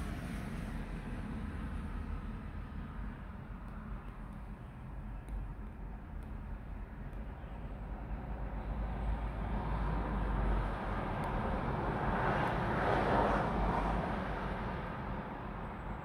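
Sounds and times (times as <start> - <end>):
cars driving past: 8.7 - 15.9.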